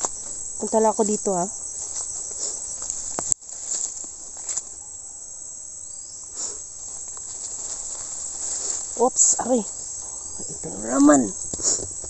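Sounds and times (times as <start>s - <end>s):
insects chirping chorus: 0.0s - 12.0s
faint rustles: 1.7s - 5.0s, 6.2s - 12.0s.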